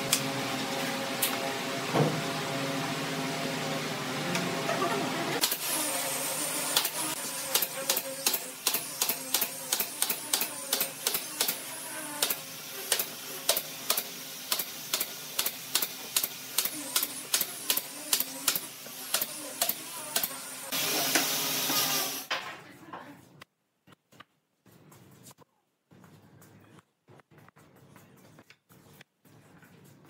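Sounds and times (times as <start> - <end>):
pneumatic nailer firing: 5.4 - 22.4.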